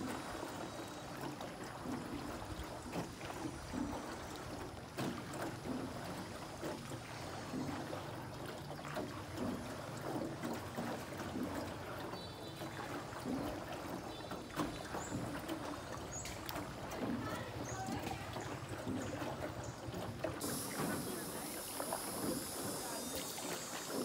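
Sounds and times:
boat knocking: 0.0 - 24.0
water lapping around a boat: 0.0 - 24.0.

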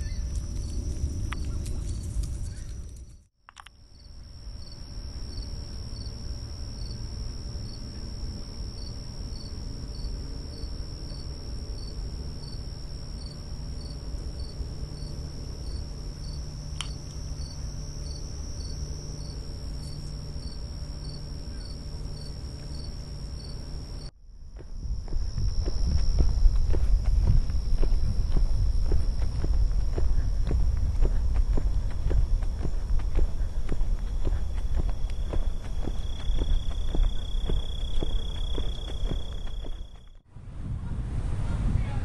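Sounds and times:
crickets trilling: 0.0 - 40.2
repeating cricket chirp: 0.0 - 40.2
low rumble: 23.8 - 42.0.

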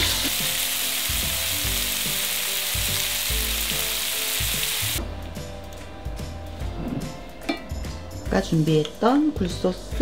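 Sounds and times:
meat frying in oil sizzling: 0.0 - 5.0.

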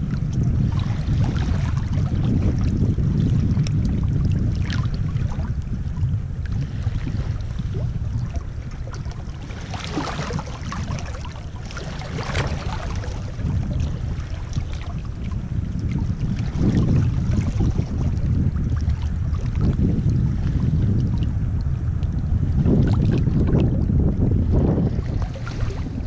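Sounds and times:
steady low rumble: 0.0 - 26.0
waves washing over pebbles: 8.7 - 15.3.

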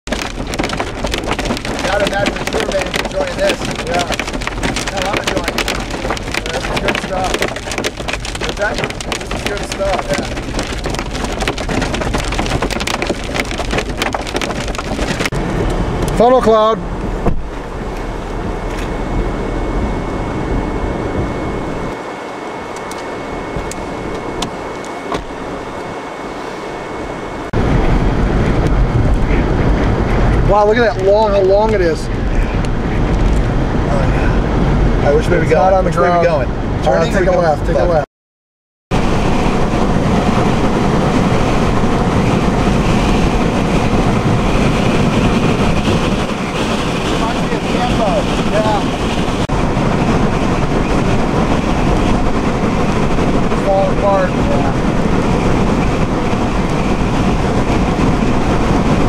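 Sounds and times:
deep rumble: 0.0 - 38.0, 38.9 - 59.0
rain and wind inside vehicle: 0.0 - 38.0, 39.0 - 59.0
raindrops ticking on car: 0.1 - 15.4, 39.0 - 59.0.

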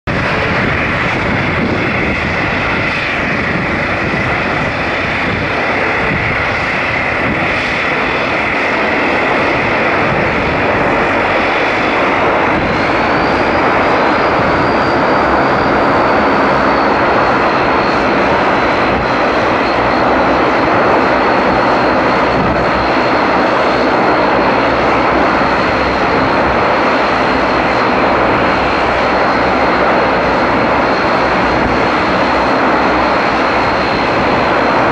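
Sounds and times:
turboprop engines running: 0.0 - 34.9.

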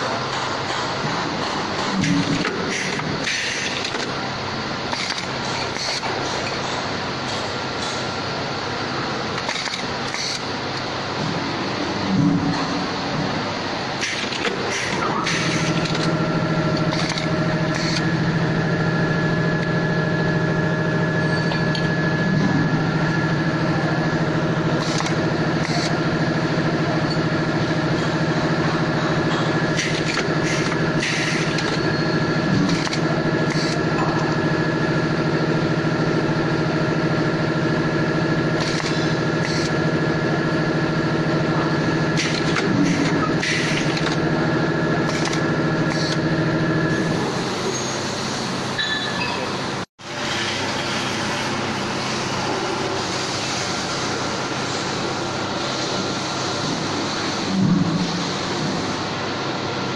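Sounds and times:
machine humming: 0.0 - 48.8
sharp machine clacks: 4.9 - 8.0, 9.4 - 10.5, 14.0 - 18.2, 24.6 - 34.3, 38.2 - 39.9, 41.9 - 44.4, 45.0 - 46.8.

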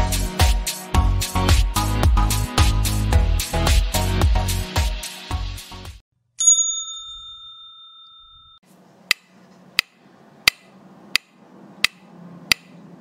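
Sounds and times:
bright chime: 6.4 - 8.6
sharp ticks: 9.1 - 12.7.

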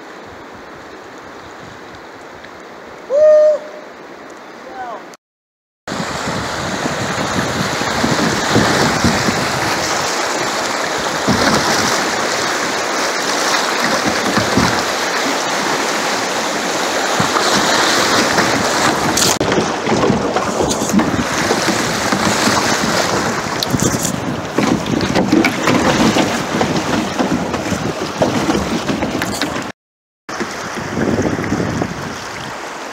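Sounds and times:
wind rumbling on microphone: 5.9 - 29.7, 30.3 - 32.9
rapids rushing and splashing: 5.9 - 32.9.

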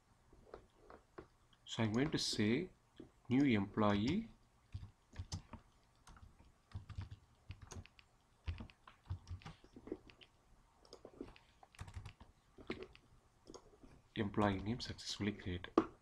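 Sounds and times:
typing on computer keyboard: 3.9 - 10.2, 10.9 - 13.6.

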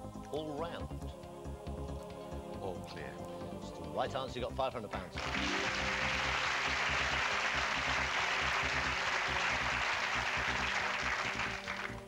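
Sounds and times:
sustained music sting: 5.2 - 9.1
audience applauding: 5.2 - 12.0.

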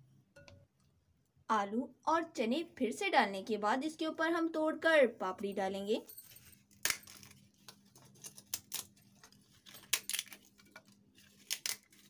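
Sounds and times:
crisp wafers snapping: 6.8 - 7.3, 8.4 - 9.0, 11.3 - 12.0.

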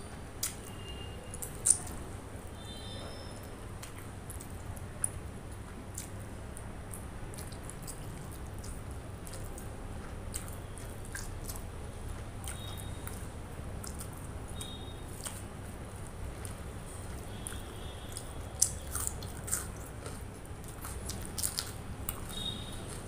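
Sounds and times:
chewing food: 0.1 - 2.0, 2.6 - 23.0
wet mouth clicks and smacks: 0.4 - 0.8, 1.4 - 2.0, 5.9 - 9.7, 10.3 - 11.7.

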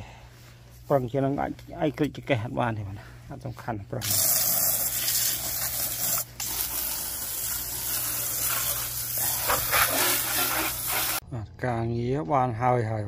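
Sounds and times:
water spray hissing on mower: 4.0 - 11.2.

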